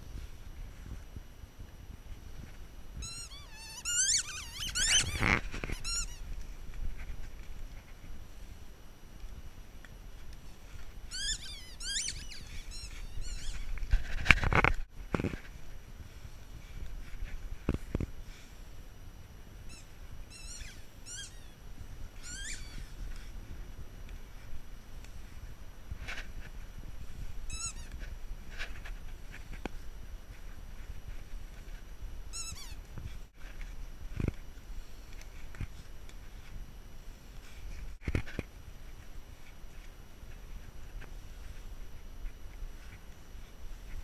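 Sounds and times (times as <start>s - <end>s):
squeaky dog toy: 3.0s - 6.2s, 11.1s - 13.7s, 19.7s - 21.6s, 22.2s - 22.9s, 27.5s - 28.0s, 32.3s - 32.8s
high wavering falling calls: 3.0s - 6.3s, 11.1s - 13.8s, 19.7s - 21.6s, 22.2s - 23.0s.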